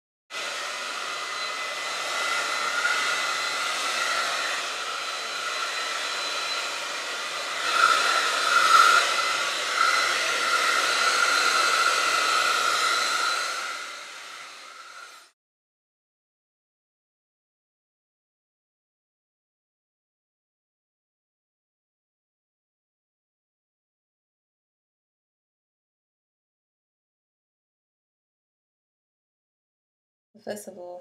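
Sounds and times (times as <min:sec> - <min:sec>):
hair dryer running: 0:00.3 - 0:15.4.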